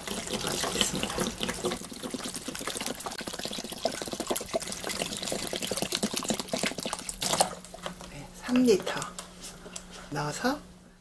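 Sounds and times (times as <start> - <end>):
water pouring into a pot: 0.0 - 7.5.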